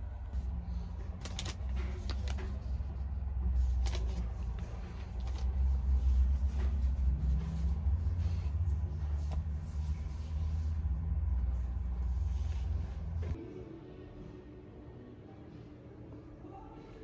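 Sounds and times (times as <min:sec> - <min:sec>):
steady low rumble: 0:00.0 - 0:16.2
fabric rustling: 0:00.3 - 0:13.4
bag being handled: 0:01.1 - 0:13.4.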